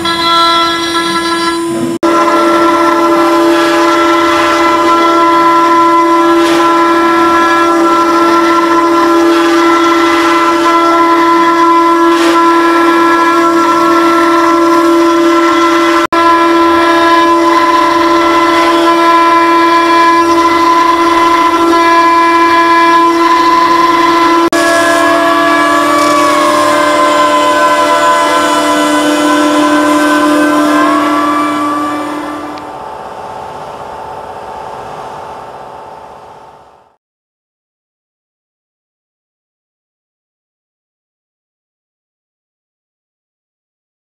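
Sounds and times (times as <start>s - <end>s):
rough metal cutting noise: 8.7s - 36.6s
router spindle high whine: 11.0s - 37.0s.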